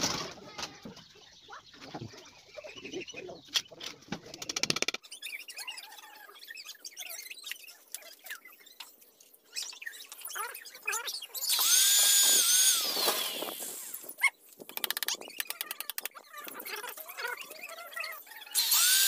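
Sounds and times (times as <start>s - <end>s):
power tool whining: 11.4s - 14.1s, 18.6s - 19.0s.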